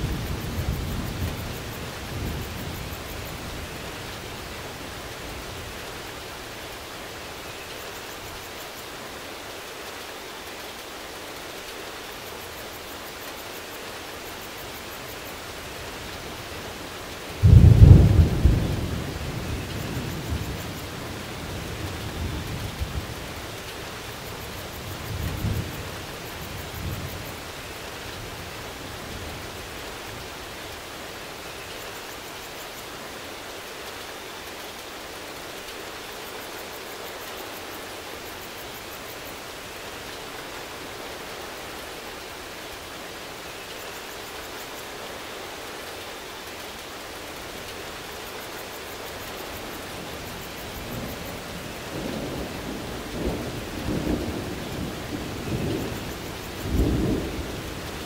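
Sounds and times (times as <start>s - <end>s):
steady rain: 0.0s - 58.0s
thunder clap and rumble: 17.4s - 23.3s, 50.7s - 58.0s.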